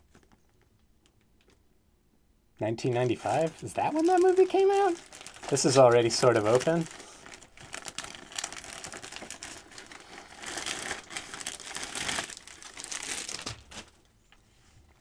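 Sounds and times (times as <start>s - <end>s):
plastic wrapping crackling: 2.6s - 14.2s.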